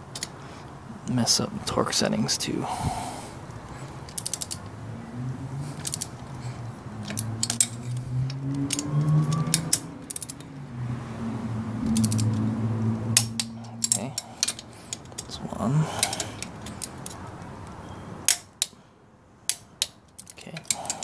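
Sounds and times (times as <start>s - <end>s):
low hum: 2.6s - 16.7s
torque wrench ratchet clicking: 4.1s - 4.6s, 5.8s - 6.2s, 7.0s - 10.5s, 11.8s - 12.4s, 13.2s - 15.3s.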